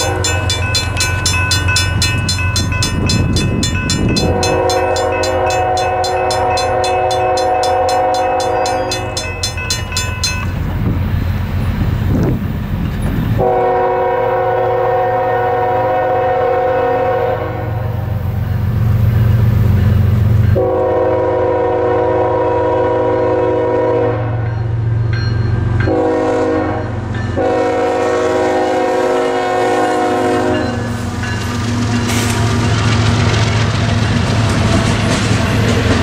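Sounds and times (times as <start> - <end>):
locomotive air horn blasts: 0.0 - 0.7, 4.0 - 9.2, 13.4 - 17.9, 20.6 - 24.4, 25.9 - 30.8
diesel locomotive rumble: 0.0 - 36.0.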